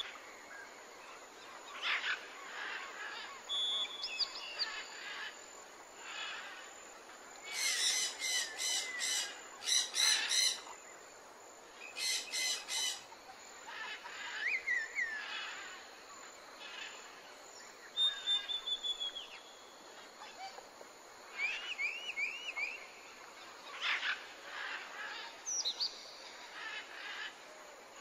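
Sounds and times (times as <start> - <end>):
thin bird whistle: 18.0 - 19.4.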